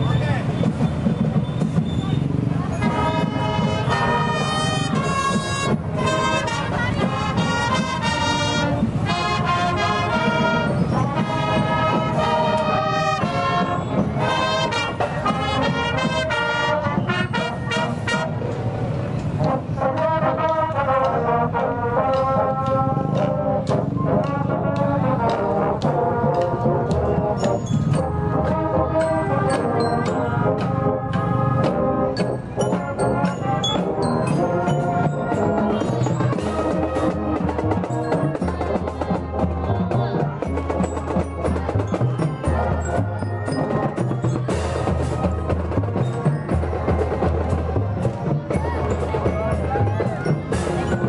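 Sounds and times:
marching drum beats: 0.0s - 51.0s
brass horns playing melody: 2.8s - 18.6s, 19.4s - 38.0s.

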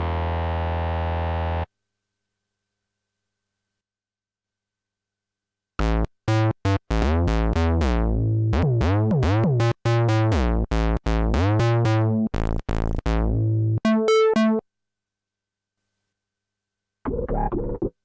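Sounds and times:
synthesizer bass riff: 0.0s - 1.7s, 5.8s - 14.6s, 17.1s - 17.9s.

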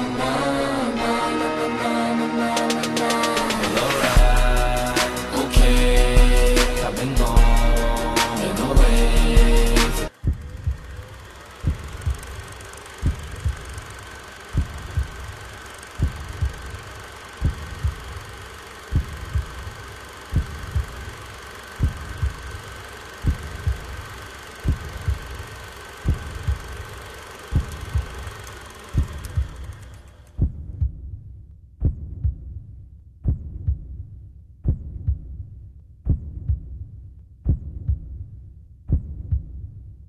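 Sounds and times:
steady high tone: 0.0s - 11.1s
low heartbeat thumps: 4.1s - 5.0s, 5.6s - 12.4s, 13.0s - 13.8s, 14.6s - 15.3s, 16.0s - 16.7s, 17.4s - 18.2s, 18.9s - 19.7s, 20.3s - 21.2s, 21.8s - 22.6s, 23.2s - 25.4s, 26.0s - 26.9s, 27.5s - 28.2s, 29.0s - 29.7s, 30.4s - 40.0s.

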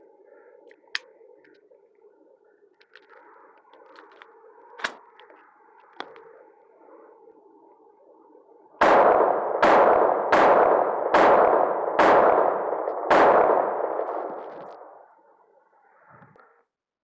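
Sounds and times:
pistol shots with echo: 8.8s - 15.0s.

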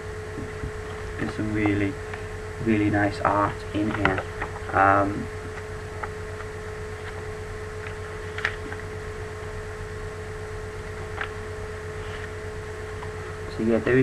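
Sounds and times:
steady hum and hiss: 0.0s - 14.0s
paper pages rustling: 7.0s - 8.9s, 12.0s - 12.4s.

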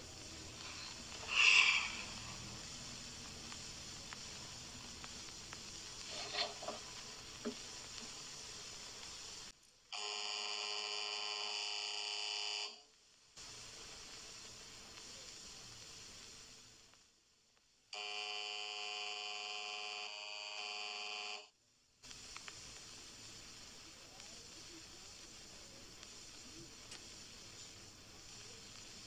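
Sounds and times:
faint clicks: 0.0s - 9.8s, 22.0s - 29.0s
film soundtrack hiss: 0.0s - 29.0s
electric signal buzzer: 10.0s - 12.8s, 18.0s - 21.6s.

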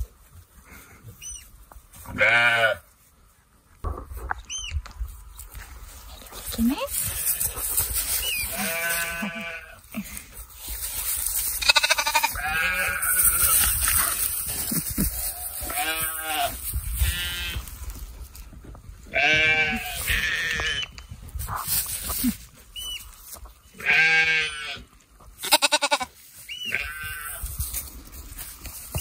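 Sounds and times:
lambs bleating: 2.1s - 2.8s, 8.3s - 9.9s, 11.6s - 17.7s, 19.1s - 20.9s, 23.8s - 27.5s.

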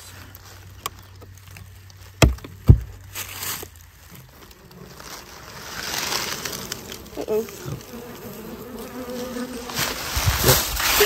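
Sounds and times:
dull wooden knocks: 2.2s - 3.0s.

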